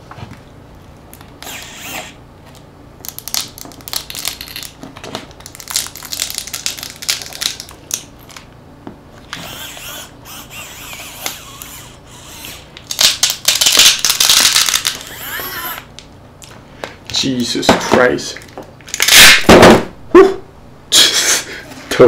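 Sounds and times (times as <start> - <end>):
battery crackling: 3.0 - 8.4, 12.8 - 16.1.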